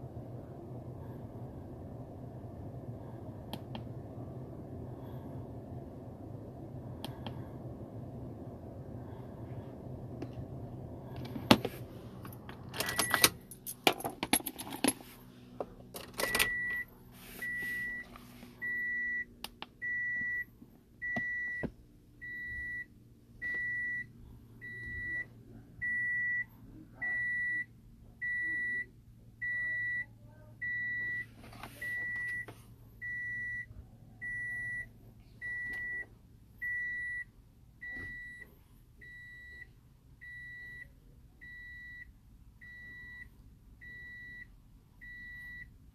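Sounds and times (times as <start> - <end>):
keys jangling: 12.8 - 15.0.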